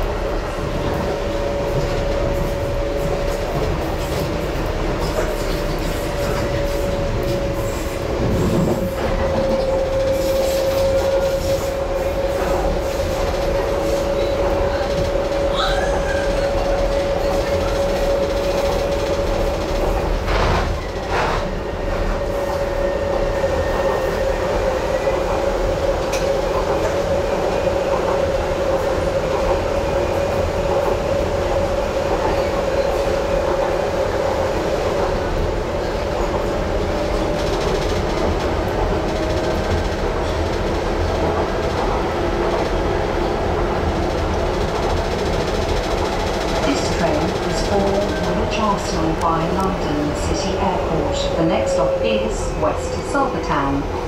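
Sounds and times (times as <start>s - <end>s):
train motor whine and rumble: 0.0s - 54.0s
knocks from train running gear: 17.4s - 21.5s.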